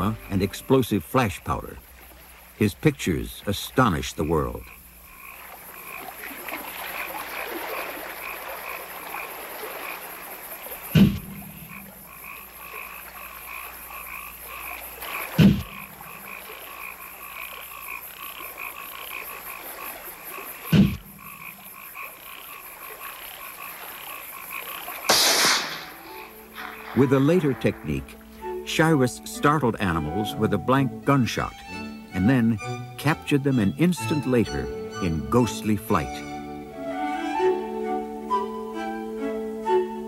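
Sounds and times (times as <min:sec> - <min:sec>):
frogs calling in pulsing trills: 0:00.0 - 0:40.0
flash powder bang: 0:25.1 - 0:26.0.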